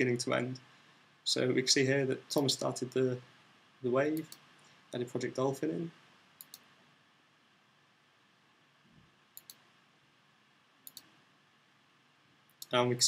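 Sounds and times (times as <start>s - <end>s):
computer mouse clicking: 6.4s - 6.7s, 9.4s - 9.6s, 10.8s - 11.1s.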